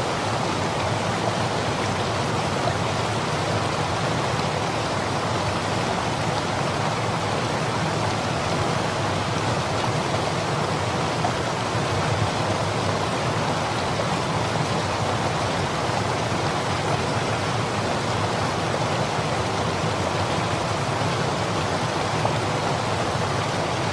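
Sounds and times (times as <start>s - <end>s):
river running over rocks: 0.0s - 23.9s.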